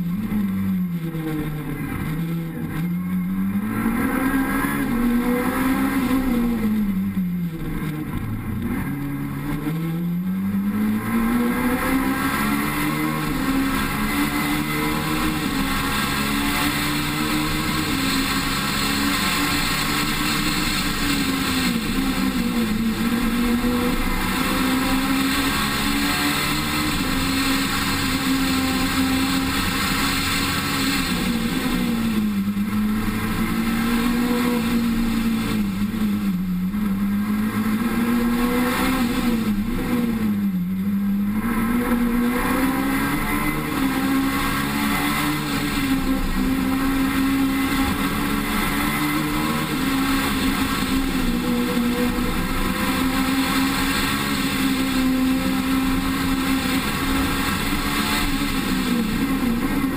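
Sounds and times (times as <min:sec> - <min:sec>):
rally car engine revving: 0:00.0 - 0:59.9
wind and road noise: 0:00.0 - 0:59.9.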